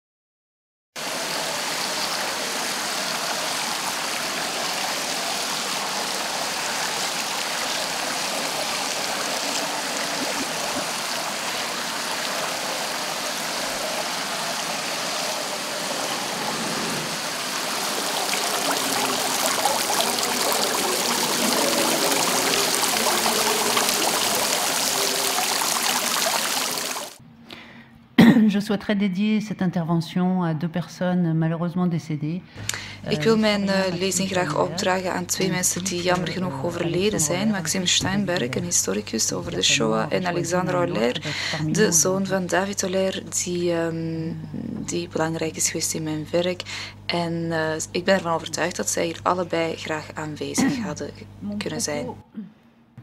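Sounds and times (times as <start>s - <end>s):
fountain water splashing: 1.0s - 27.2s, 33.4s - 42.1s.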